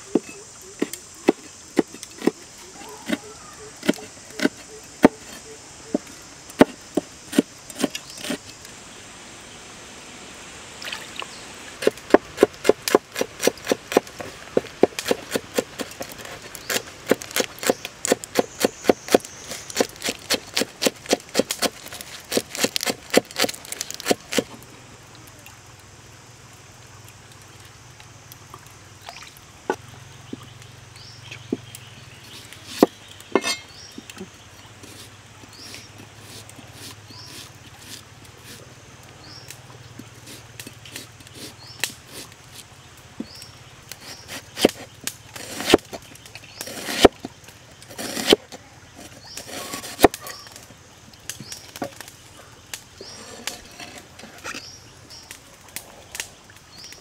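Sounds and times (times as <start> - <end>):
knife chopping on wooden board: 11.8 - 24.4, 46.7 - 47.1, 48.0 - 48.4.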